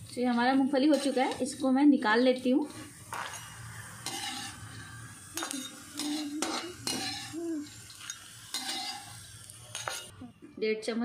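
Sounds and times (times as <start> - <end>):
faint oil sizzle: 0.0 - 10.1
metal skimmer scraping a wok: 0.0 - 10.1.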